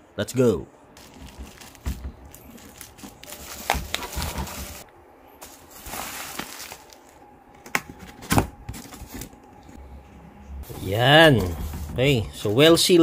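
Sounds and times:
packaging rustling and scraping: 1.0s - 7.2s, 7.8s - 9.4s.

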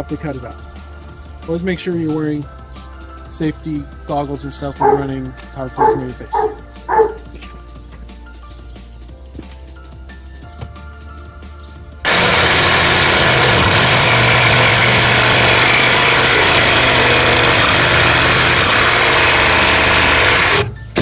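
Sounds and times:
reciprocating saw cutting plastic pipe: 12.1s - 21.0s.

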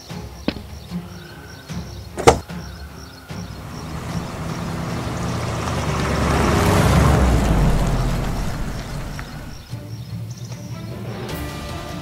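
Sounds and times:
car door slamming: 2.2s - 2.5s
van engine running: 2.2s - 2.5s, 3.3s - 9.7s.

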